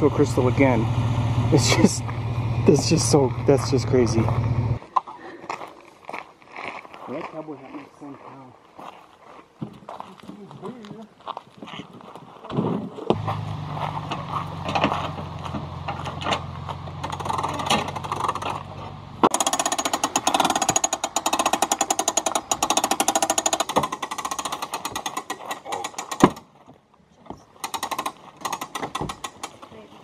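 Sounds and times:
low hum: 0.0 - 4.9
winch crank clicking: 17.0 - 18.6, 19.3 - 26.3, 27.6 - 29.7.

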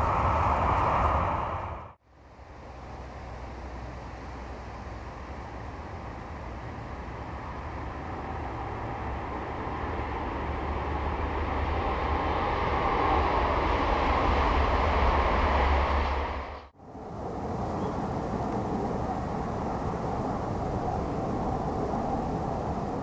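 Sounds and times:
bullet train rushing past: 0.0 - 23.0.

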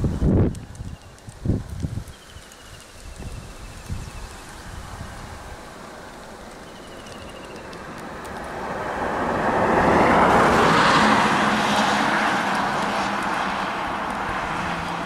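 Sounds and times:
pickup truck driving past: 8.6 - 15.0.

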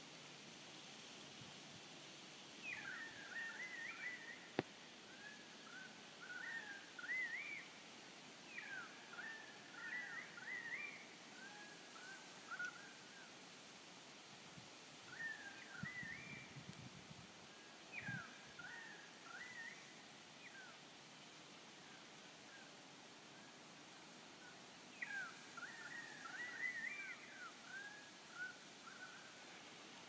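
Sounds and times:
faint outdoor hiss: 0.0 - 30.0
songbird warbling: 8.5 - 13.3, 24.9 - 29.6.

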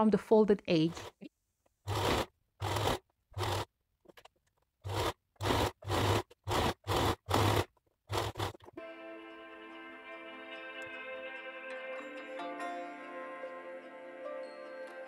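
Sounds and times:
sewing machine stitching: 1.8 - 8.8.

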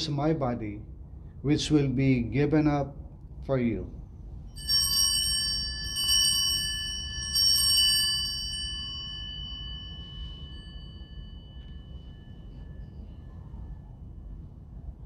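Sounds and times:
altar bells ringing: 4.5 - 14.2.

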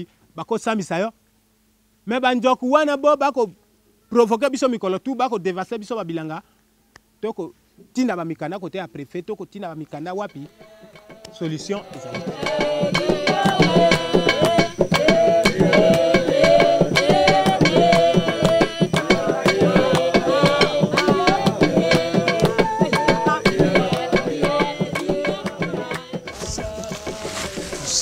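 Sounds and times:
hand drums quick rhythm: 10.2 - 28.0.

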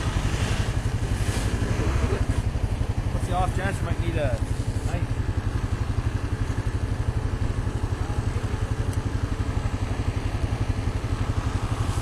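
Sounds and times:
vehicle engine idling: 0.0 - 12.0.

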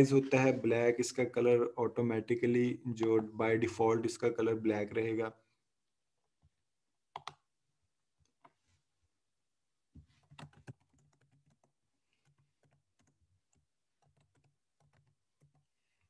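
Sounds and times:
computer keyboard typing: 7.1 - 7.4, 10.2 - 15.7.

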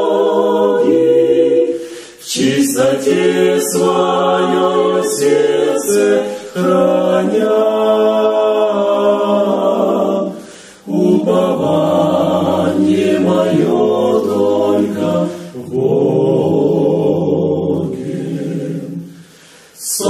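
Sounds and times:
a cappella group singing hymn: 0.0 - 20.0.

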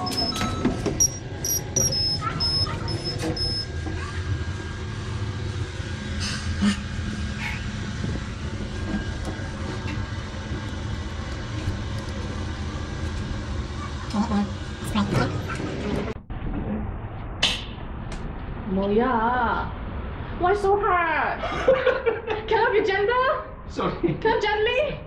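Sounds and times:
lift car humming: 0.0 - 16.2.

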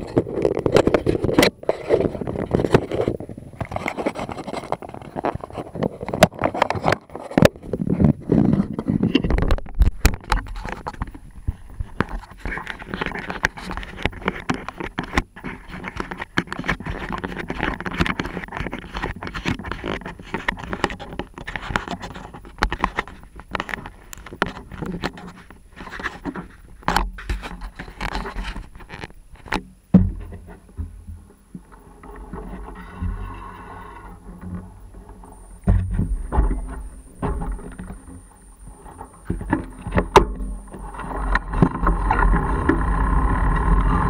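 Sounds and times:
camera handling scraping and rustling: 0.0 - 29.6
clicks and knocks: 0.0 - 42.9.

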